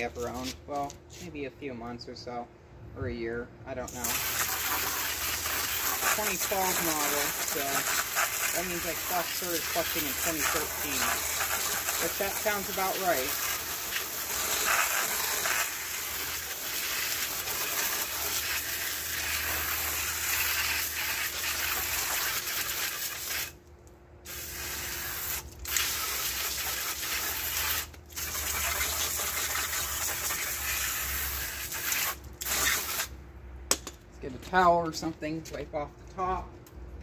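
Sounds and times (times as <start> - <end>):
hose nozzle spraying water: 3.9 - 23.6, 24.3 - 33.1.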